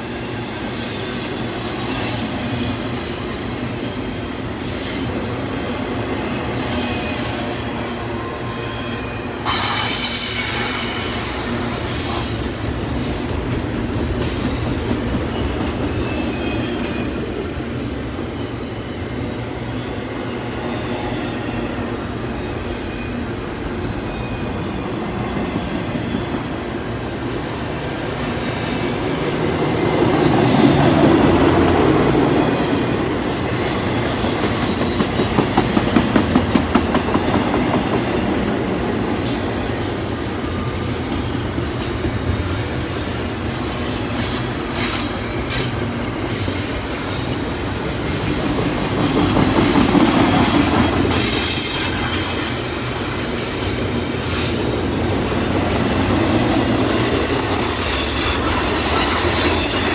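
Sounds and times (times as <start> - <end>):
high wheel squeals: 0.0 - 13.3, 37.6 - 59.9
freight train wheels rumbling: 0.0 - 59.9.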